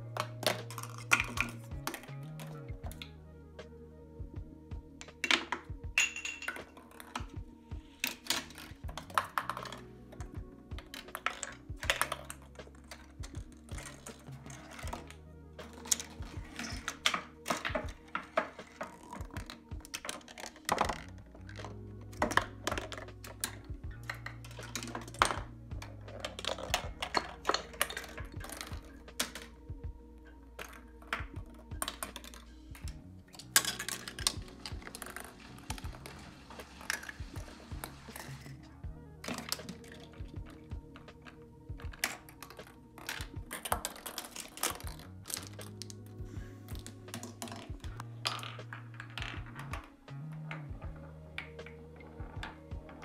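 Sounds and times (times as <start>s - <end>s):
balls rolling and dropping: 0.0s - 3.7s, 4.3s - 53.0s
parts knocking and clattering: 5.0s - 29.8s, 30.6s - 38.6s.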